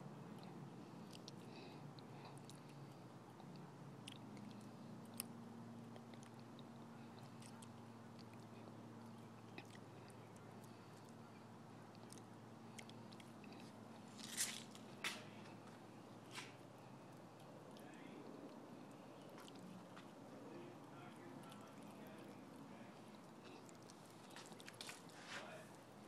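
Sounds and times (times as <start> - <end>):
squirrel chewing crunching clicks: 0.2 - 26.0.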